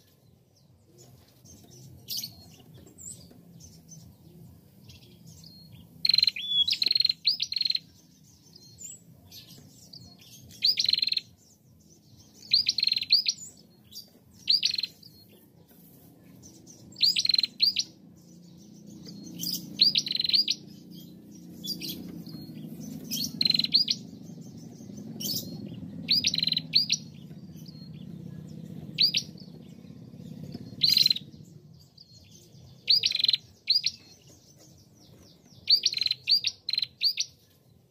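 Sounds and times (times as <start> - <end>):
bird chirping: 0.0 - 37.9
faint low rumble: 14.9 - 35.7.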